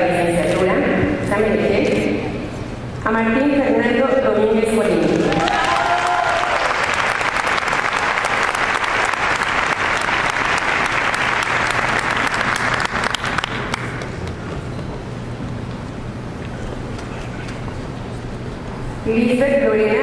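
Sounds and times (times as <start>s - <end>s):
audience applause: 5.2s - 14.6s.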